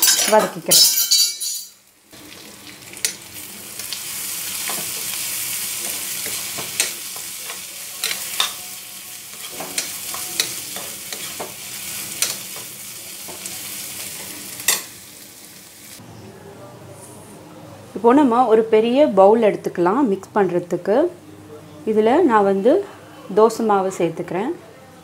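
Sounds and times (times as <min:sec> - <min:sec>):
vegetables sizzling in oil: 0:01.8 - 0:16.0
spatula scraping a pan: 0:04.5 - 0:13.6.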